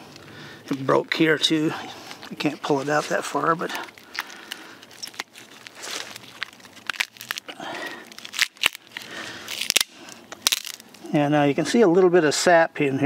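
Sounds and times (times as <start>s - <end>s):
wood cracking and snapping: 3.6s - 11.0s.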